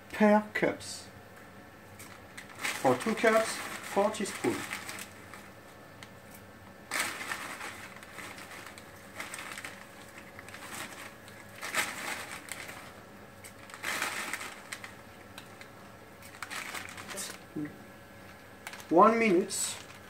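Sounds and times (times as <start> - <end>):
plastic bag crinkling: 2.0 - 20.0.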